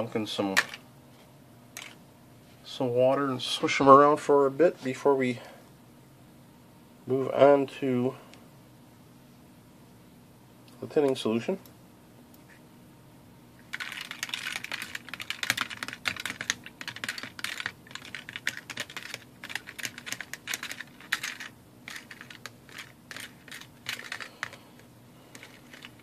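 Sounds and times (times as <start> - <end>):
metal terminals clicking in plastic tub: 13.7 - 24.6, 25.3 - 26.0.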